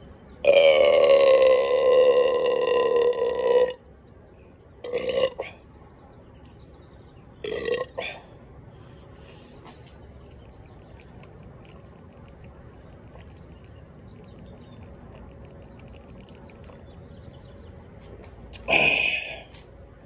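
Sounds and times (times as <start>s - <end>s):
man burping: 0.5s - 3.8s, 4.8s - 5.6s, 7.4s - 8.3s, 18.6s - 19.5s.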